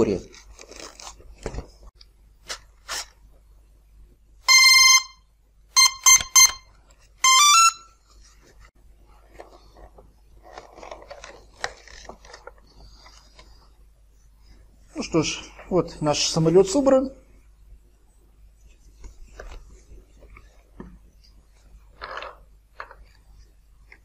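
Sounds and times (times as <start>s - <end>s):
handling rustles and clicks: 8.1s - 13.5s.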